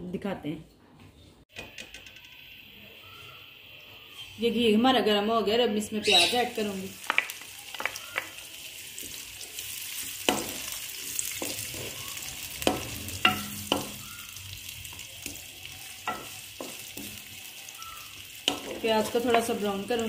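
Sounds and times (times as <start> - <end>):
onions sizzling in a pot: 2.3 - 20.0
wooden spoon knocking on pot: 12.6 - 14.2, 16.1 - 17.2.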